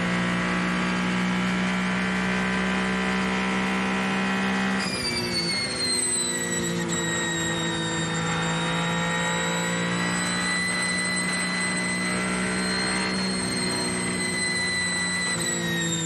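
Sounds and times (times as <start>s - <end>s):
race car engine at high revs: 0.0s - 16.0s
high-pitched whine: 2.2s - 16.0s.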